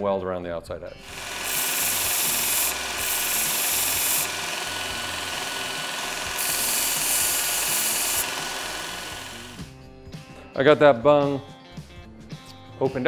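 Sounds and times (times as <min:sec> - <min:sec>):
belt grinder grinding steel: 0:01.0 - 0:09.7
belt grinder running: 0:01.0 - 0:09.7.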